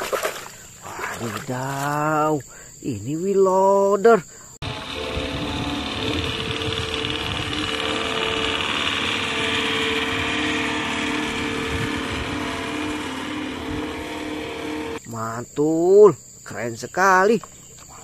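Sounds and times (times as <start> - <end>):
diesel engine running: 4.6 - 15.0
steady whine: 4.6 - 15.1.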